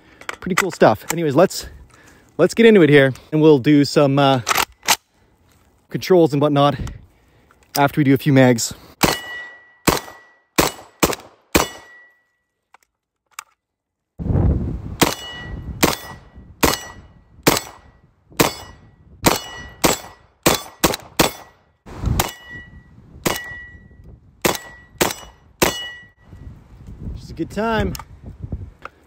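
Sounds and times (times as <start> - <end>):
steel target ringing: 9.0 - 11.0, 15.0 - 17.1, 18.4 - 21.6, 22.2 - 26.2.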